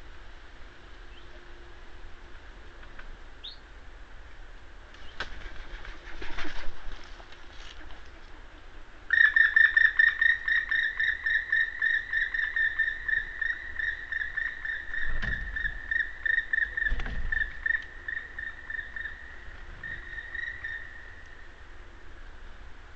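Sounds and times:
woodpecker calling: 0:09.1 - 0:21.6.

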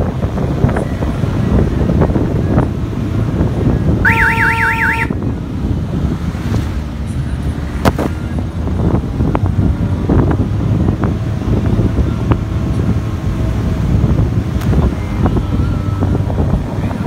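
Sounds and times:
road rumble: 0:00.0 - 0:17.0
warbling electronic horn: 0:04.0 - 0:05.2
wind buffeting: 0:07.9 - 0:17.0.

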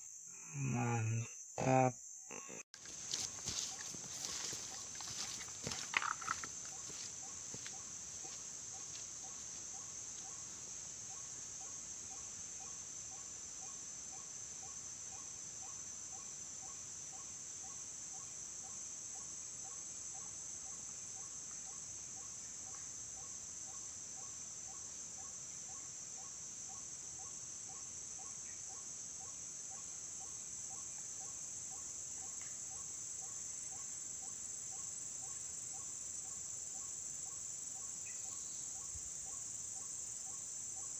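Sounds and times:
high-pitched insect chorus: 0:00.0 - 0:40.9.

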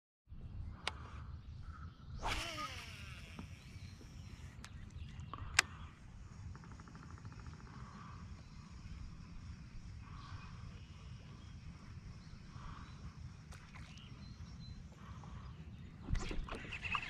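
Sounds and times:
fishing line hissing off reel: 0:02.2 - 0:04.7
reel clicks: 0:02.2 - 0:08.4
reel ticking: 0:02.2 - 0:13.7
steady low rumble: 0:03.6 - 0:16.8.

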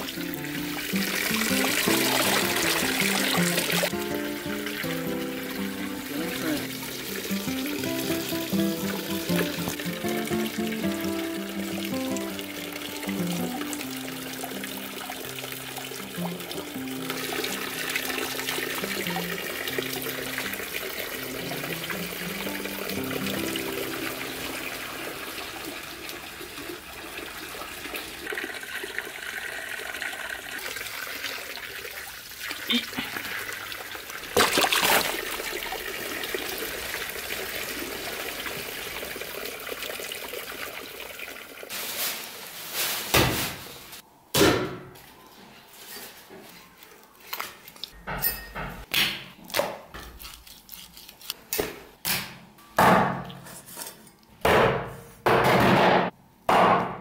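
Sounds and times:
water pouring and splashing: 0:00.0 - 0:44.0
loud splash: 0:34.3 - 0:35.6.

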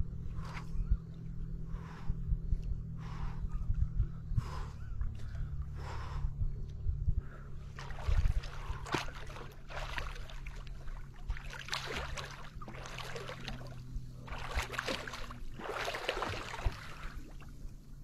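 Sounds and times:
water splashing and sloshing: 0:04.4 - 0:18.0.

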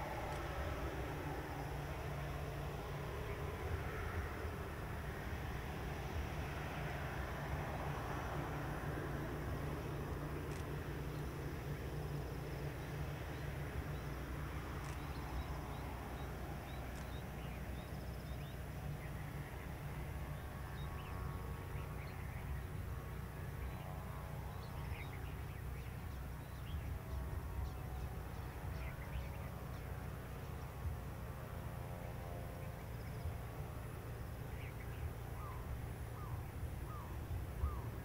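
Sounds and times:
faint engine whine: 0:00.0 - 0:38.0
birds chirping: 0:09.8 - 0:30.8, 0:34.2 - 0:38.0.

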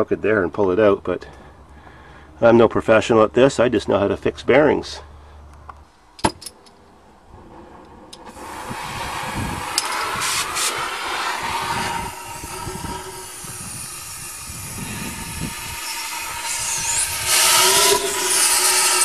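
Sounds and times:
cutting torch flame hissing: 0:07.3 - 0:19.0
torch cutting metal with whistling: 0:07.5 - 0:19.0.

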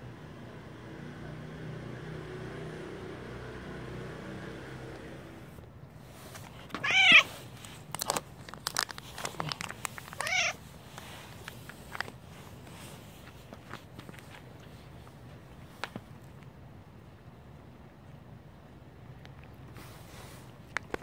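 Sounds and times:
plastic wrapper crinkling: 0:06.4 - 0:14.3
cat meowing: 0:06.7 - 0:07.4, 0:10.0 - 0:10.7.

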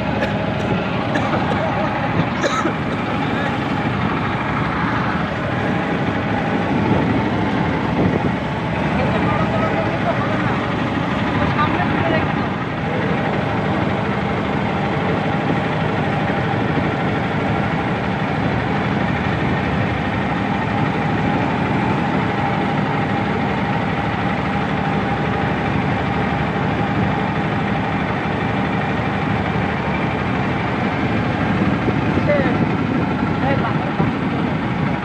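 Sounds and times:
boat engine drone: 0:00.0 - 0:35.0.

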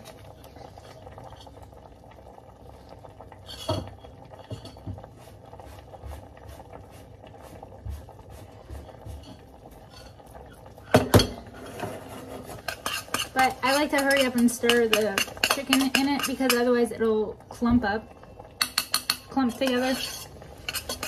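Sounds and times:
spoon clinking on steel pots: 0:12.6 - 0:16.9, 0:18.6 - 0:21.0.

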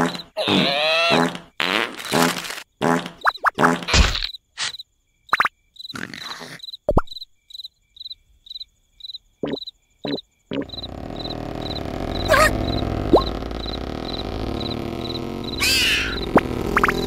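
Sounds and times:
cartoon vocal noises: 0:00.0 - 0:01.4, 0:06.0 - 0:06.6, 0:11.8 - 0:13.6, 0:14.4 - 0:17.0
cricket chirping: 0:03.2 - 0:17.0
short blips: 0:09.4 - 0:17.0.

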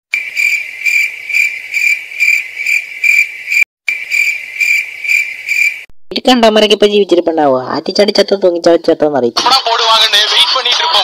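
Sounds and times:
cricket chirping: 0:00.1 - 0:05.9.

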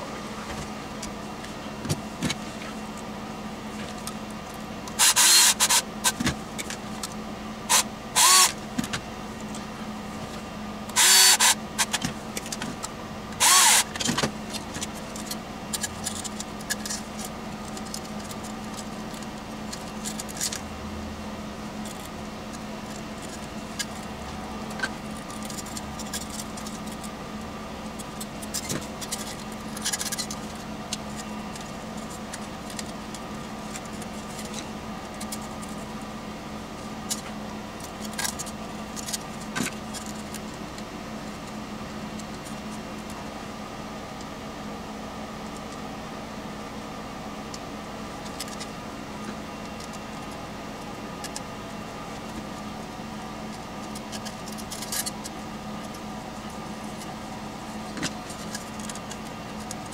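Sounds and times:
steady low hum: 0:00.0 - 0:59.9
cordless drill running: 0:04.9 - 0:06.2, 0:07.7 - 0:08.6, 0:10.9 - 0:12.0, 0:13.4 - 0:14.0.

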